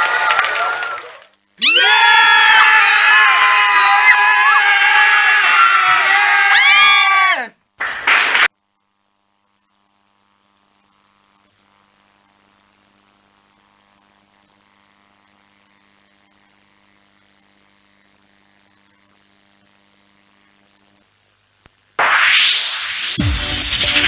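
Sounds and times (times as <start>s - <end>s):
faint mains hum with hiss: 8.5s - 22.0s.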